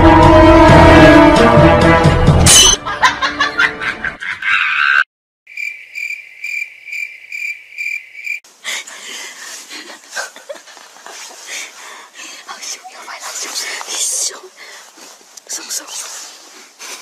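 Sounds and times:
scuffling noise: 9.1 - 17.0.

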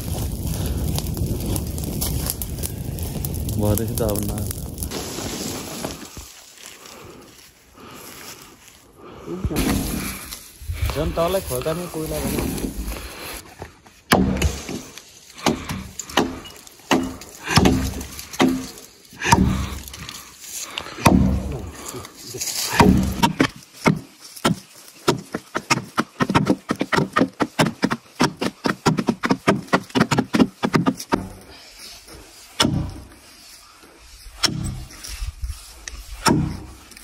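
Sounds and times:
axe chopping wood: 14.1 - 19.9, 20.9 - 21.7, 22.7 - 31.5, 32.6 - 33.1, 34.4 - 34.9, 36.2 - 36.8.

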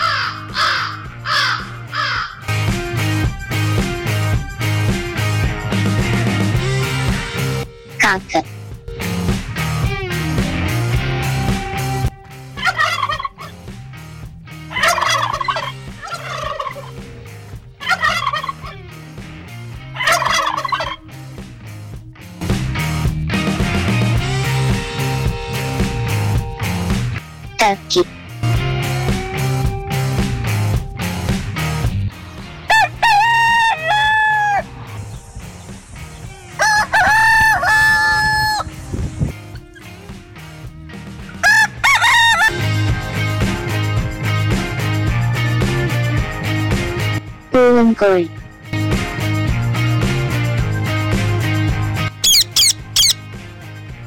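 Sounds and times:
rooster crowing: 0.0 - 2.4, 32.7 - 34.7, 36.5 - 38.7, 41.4 - 42.6, 52.2 - 53.2
turkey gobbling: 0.0 - 2.4, 12.6 - 13.6, 14.7 - 17.0, 17.8 - 18.8, 20.0 - 21.0, 32.7 - 34.6, 36.6 - 38.7, 41.3 - 42.5, 52.2 - 53.2.

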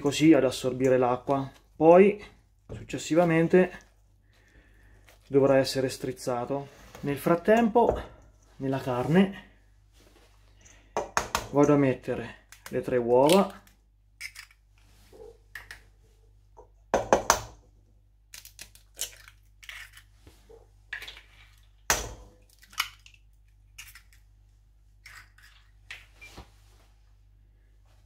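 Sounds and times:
eggshell crunching: 18.3 - 20.2.

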